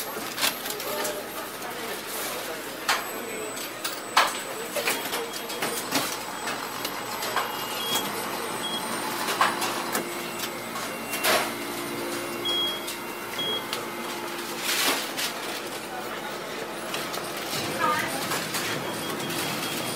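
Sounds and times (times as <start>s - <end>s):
utensils and dishes clattering: 2.0s - 13.0s.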